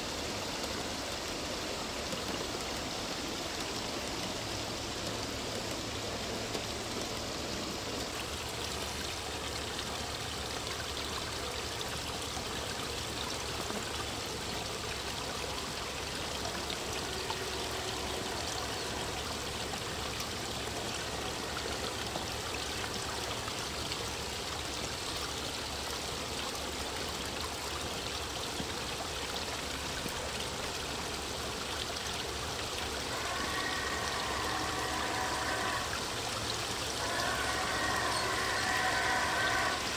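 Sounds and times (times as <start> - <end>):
water trickling and splashing: 0.0 - 39.9
model locomotive whistle chord: 33.1 - 36.1, 37.0 - 39.9.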